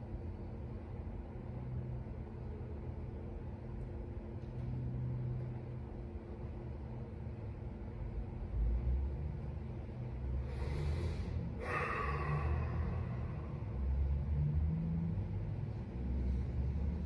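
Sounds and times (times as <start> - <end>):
steady low rumble: 0.0 - 17.0
breathy rush of noise: 10.3 - 15.2.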